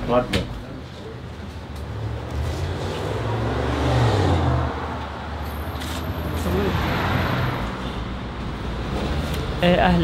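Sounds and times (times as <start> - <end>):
vehicle engine rumble and road noise: 0.0 - 10.0.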